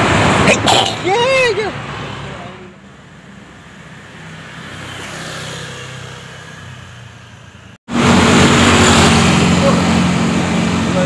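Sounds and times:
vehicle engine passing: 0.0s - 11.0s
close engine running: 7.9s - 11.0s.

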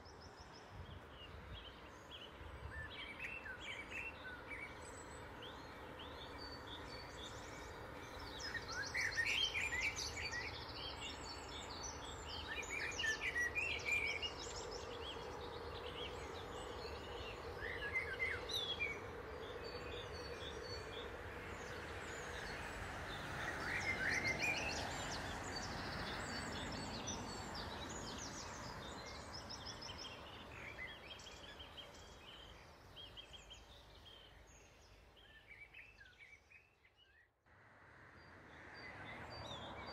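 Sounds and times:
small birds chirping and trilling: 0.0s - 37.4s.

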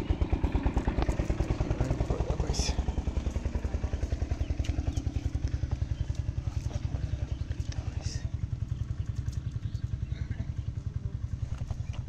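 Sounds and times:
engine throbbing: 0.0s - 12.0s.

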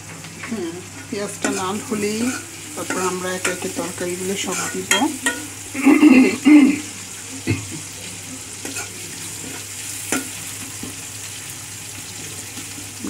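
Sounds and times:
onions sizzling in hot oil: 0.0s - 13.0s
metal spoon scraping pan: 1.4s - 3.7s, 4.4s - 5.5s.

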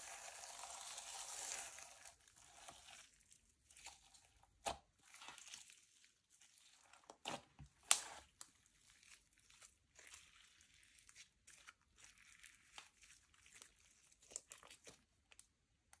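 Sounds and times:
slime crackling and popping: 0.0s - 3.1s, 3.7s - 16.0s
slime snapping: 7.8s - 8.2s.

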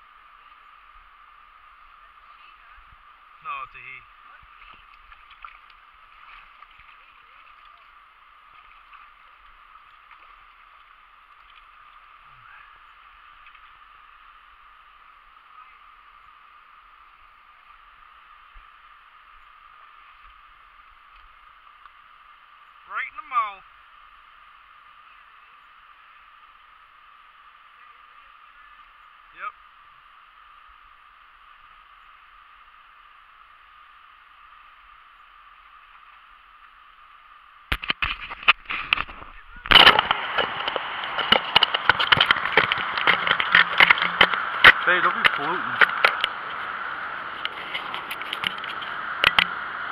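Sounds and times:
faint steady hiss: 0.0s - 49.9s
stream water running: 0.0s - 49.9s
handling noise on microphone: 37.7s - 49.6s.

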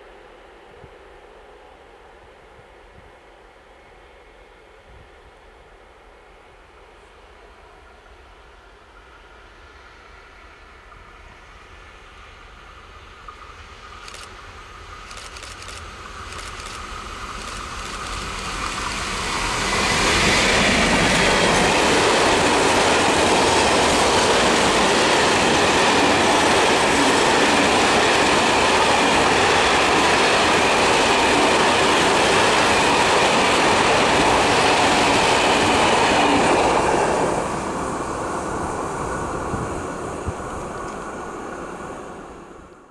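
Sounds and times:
diesel locomotive passing: 6.1s - 42.9s
train wheels rolling on rails: 12.5s - 42.8s.

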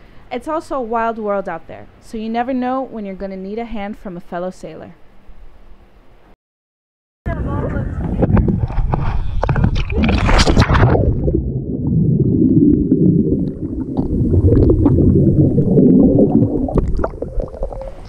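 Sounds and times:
underwater bubbling and rumbling: 7.6s - 18.0s
splash into water: 9.5s - 11.9s.

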